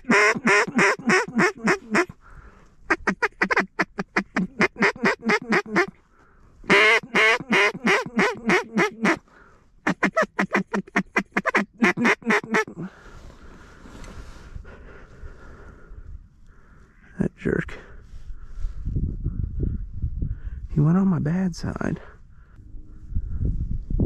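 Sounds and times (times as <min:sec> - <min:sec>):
duck call quacks: 0:00.0 - 0:02.1, 0:02.9 - 0:06.0, 0:06.7 - 0:09.2, 0:09.8 - 0:12.7.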